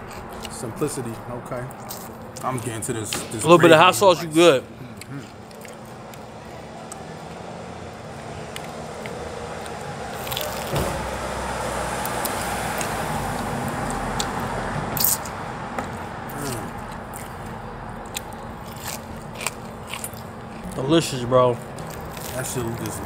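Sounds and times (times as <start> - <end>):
vehicle passing by: 5.6 - 23.0.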